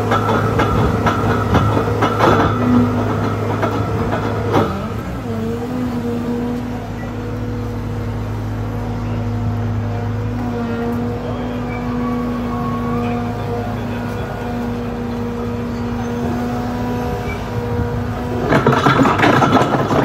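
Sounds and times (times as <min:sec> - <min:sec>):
excavator engine hum: 0:00.0 - 0:20.0
screening rotors crunching stones: 0:18.2 - 0:20.0.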